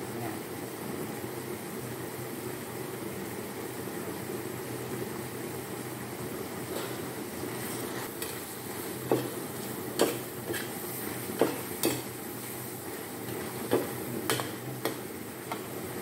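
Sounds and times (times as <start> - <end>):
sizzling in hot wok: 0.0 - 16.0
ladle scraping and clinking wok: 7.6 - 16.0.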